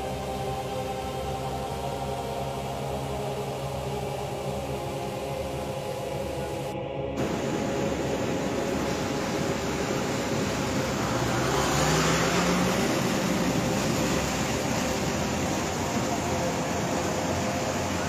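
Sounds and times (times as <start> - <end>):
floodwater rushing: 0.0 - 18.0
vehicle engine revving: 8.6 - 18.0.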